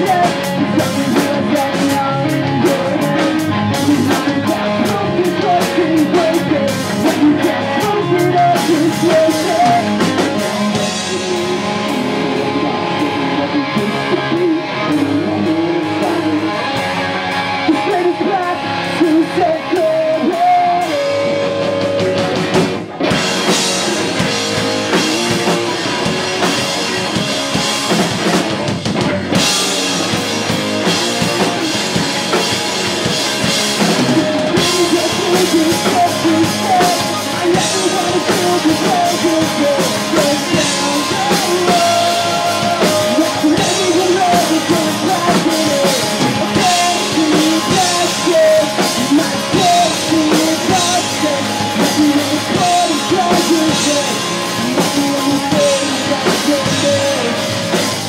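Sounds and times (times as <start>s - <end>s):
rock band playing live: 0.0s - 58.0s.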